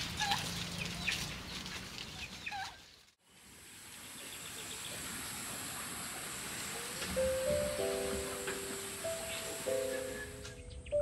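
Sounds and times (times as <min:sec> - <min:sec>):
turkeys yelping: 0:00.1 - 0:03.0, 0:07.8 - 0:10.8
high-pitched hiss: 0:03.4 - 0:10.6.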